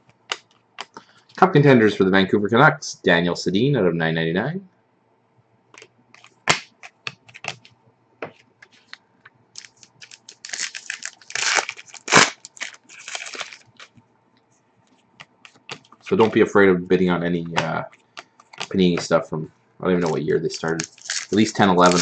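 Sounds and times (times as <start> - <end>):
cards snapping and clicking: 5.8 - 7.7.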